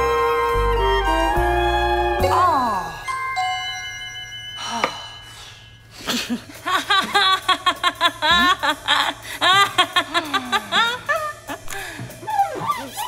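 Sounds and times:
chime: 2.6s - 6.4s.

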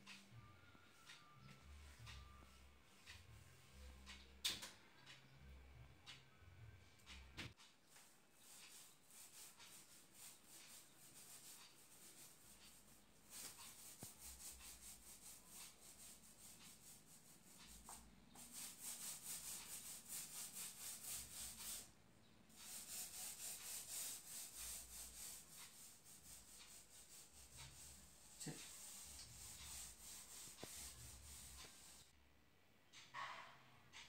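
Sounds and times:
paint roller rubbing on wall: 7.6s - 32.2s.

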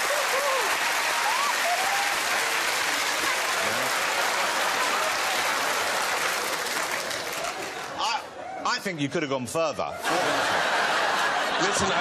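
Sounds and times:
people whooping: 0.0s - 2.4s
audience applauding: 0.0s - 8.1s.

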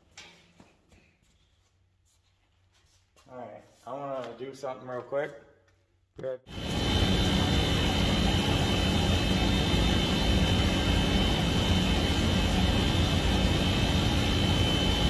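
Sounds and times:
faint high whine: 6.5s - 15.0s.

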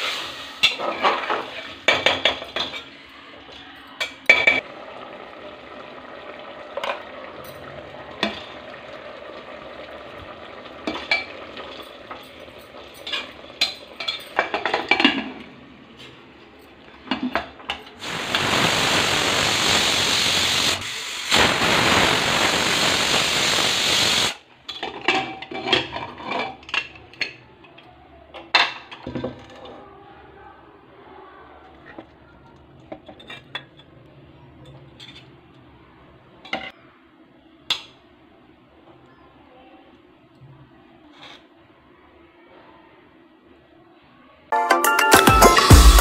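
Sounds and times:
steam hissing from pressure cooker: 0.0s - 0.8s, 18.0s - 24.4s.

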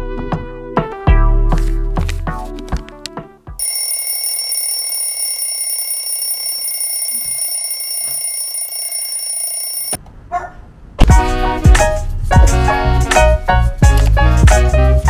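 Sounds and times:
alarm clock ringing: 3.6s - 10.0s.

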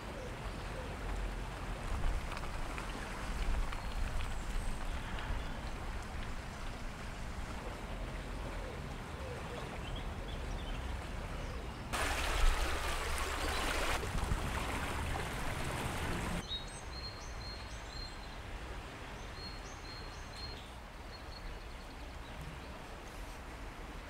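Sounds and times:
river water rushing: 11.9s - 16.9s.

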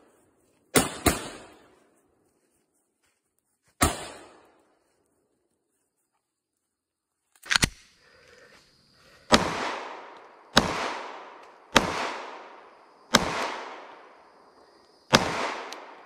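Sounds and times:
pistol shots with echo: 0.8s - 1.6s, 3.8s - 4.4s, 9.3s - 14.1s, 15.1s - 16.0s.

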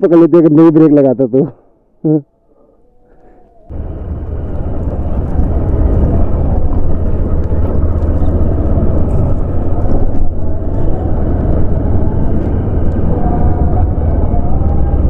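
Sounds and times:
motorcycle engine rumble: 3.1s - 15.0s
wind noise on microphone: 3.7s - 15.0s.

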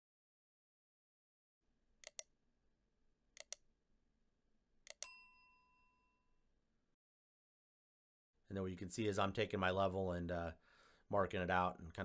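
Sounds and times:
double mouse clicks: 2.0s - 2.3s, 3.4s - 3.6s.

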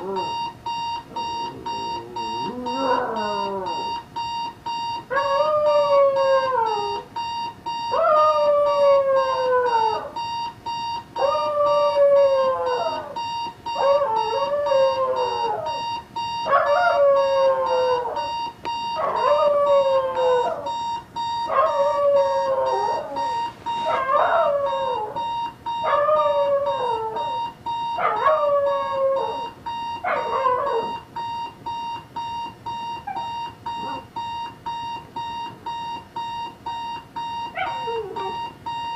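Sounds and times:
alarm clock beeping rapidly: 0.0s - 38.9s
dog howling: 1.5s - 3.9s, 21.5s - 25.2s, 25.8s - 27.4s, 28.0s - 29.4s.

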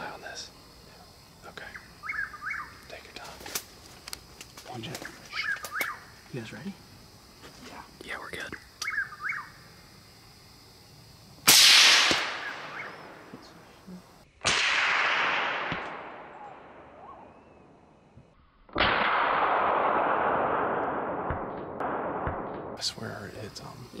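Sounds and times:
slowed-down rifle shot: 11.5s - 13.0s, 14.4s - 17.2s, 18.7s - 22.8s
rifle shot echoing: 11.5s - 13.2s, 14.4s - 17.2s, 18.7s - 22.9s.

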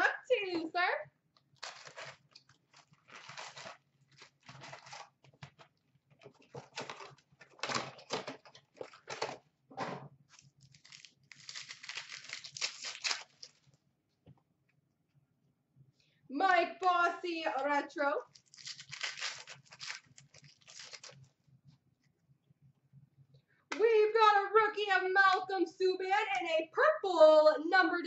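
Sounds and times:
wrappers crinkling and tearing: 1.6s - 5.6s, 10.3s - 13.8s, 18.2s - 21.3s.

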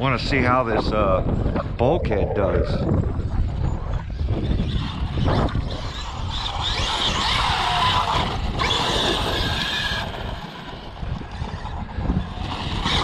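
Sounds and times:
steady low rumble: 0.0s - 3.6s.

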